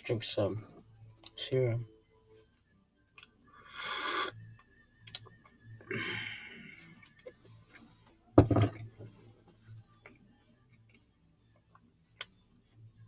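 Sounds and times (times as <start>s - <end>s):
slurping through a straw: 3.6s - 4.4s
breathy exhale: 5.9s - 6.9s.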